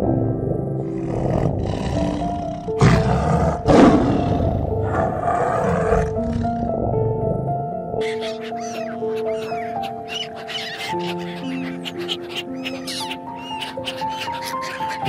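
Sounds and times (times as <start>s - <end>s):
soft background music: 0.0s - 15.0s
big cat roaring and growling: 0.2s - 7.9s.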